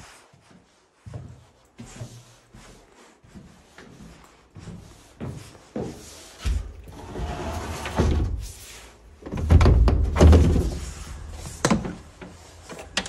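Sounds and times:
window being pushed open: 6.5 - 8.5.

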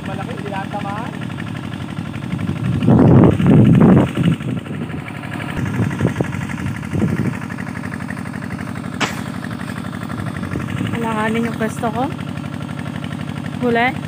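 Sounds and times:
steady low hum: 0.9 - 14.0
wind buffeting microphone: 2.0 - 8.5, 9.9 - 11.7.

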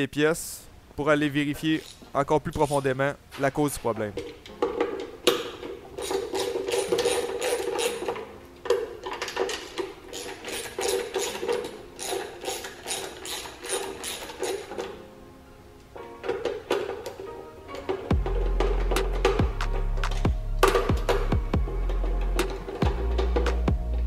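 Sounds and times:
socket ratchet clicking: 4.4 - 15.0.

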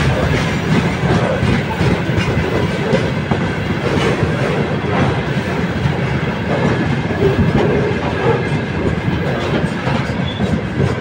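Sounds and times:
freight train rolling past: 0.0 - 11.0
wheels clacking over rail joints: 0.0 - 11.0.

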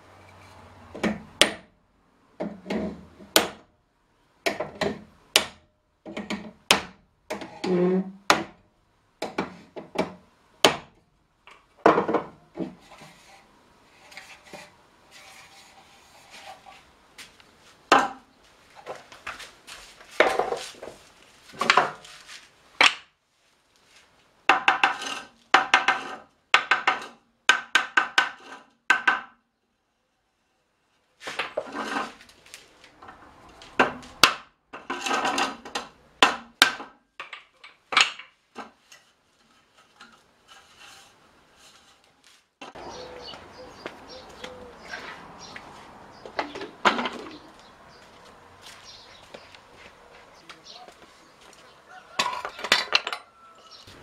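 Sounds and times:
wooden staves clattering: 14.1 - 23.1, 31.2 - 54.0.

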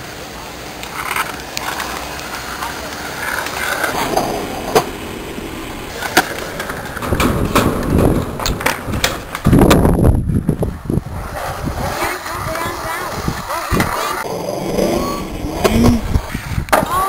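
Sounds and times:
skateboard wheels rolling on concrete: 0.0 - 17.0
skateboard clacking on ground: 0.8 - 5.0, 5.9 - 9.9.

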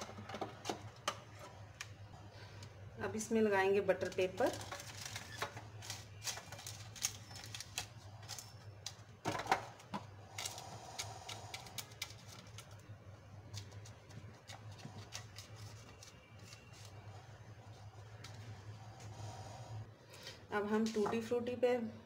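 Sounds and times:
paper crinkling: 3.9 - 18.8.

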